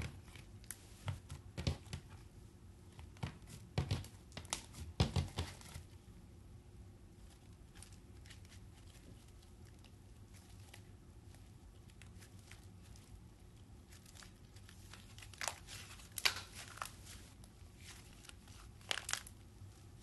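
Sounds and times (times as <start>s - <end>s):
slime crackling: 7.4s - 19.7s.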